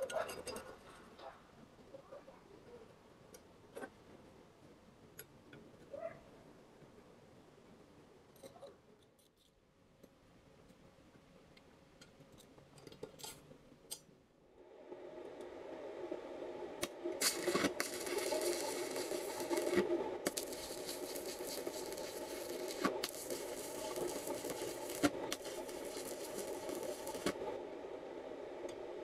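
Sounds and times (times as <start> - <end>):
arc welder crackling and hissing: 16.8 - 29.0.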